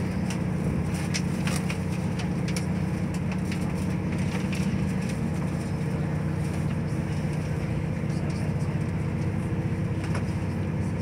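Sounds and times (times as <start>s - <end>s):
train engine hum: 0.0s - 11.0s.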